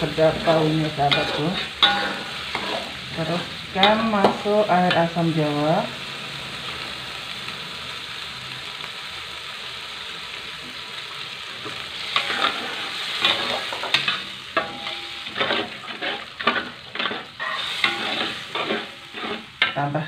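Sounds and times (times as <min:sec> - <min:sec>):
metal spatula scraping a wok: 0:00.0 - 0:05.1, 0:12.0 - 0:20.0
spice paste sizzling in a wok: 0:00.0 - 0:20.0.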